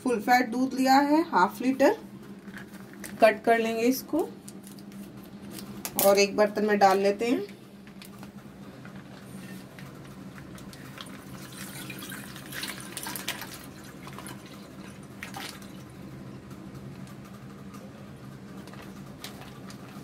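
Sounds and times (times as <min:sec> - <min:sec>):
low steady hum: 0:00.0 - 0:20.0
milk pouring into a saucepan: 0:11.0 - 0:15.9.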